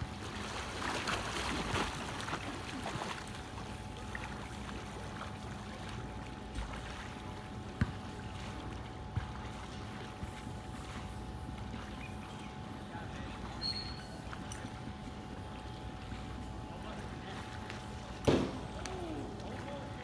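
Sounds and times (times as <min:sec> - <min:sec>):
swimmer splashing in a pool: 0:00.0 - 0:12.4
faint steady hum: 0:00.0 - 0:20.0.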